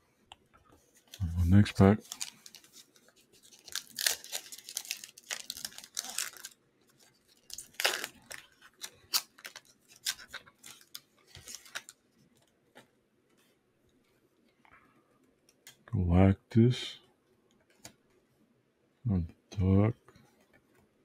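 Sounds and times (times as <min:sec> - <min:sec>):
foil wrapper tearing and crinkling: 0:02.0 - 0:12.0.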